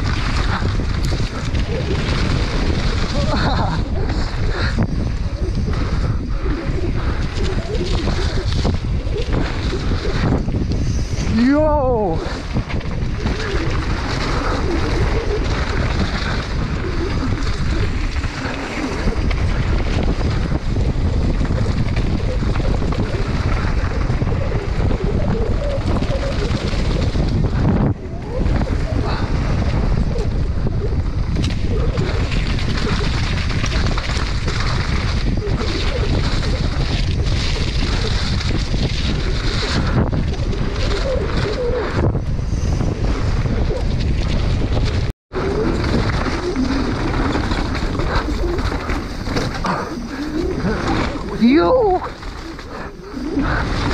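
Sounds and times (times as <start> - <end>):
bike rattling: 0.0 - 53.9
tyres rushing on loose dirt: 0.0 - 53.9
wind buffeting microphone: 0.0 - 53.9.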